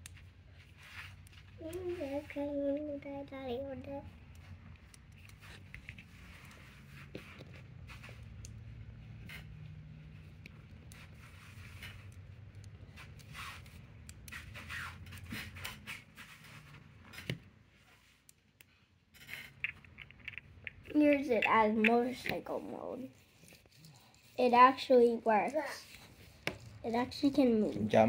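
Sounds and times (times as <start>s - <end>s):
plastic pieces clicking and scraping: 18.4s - 22.4s.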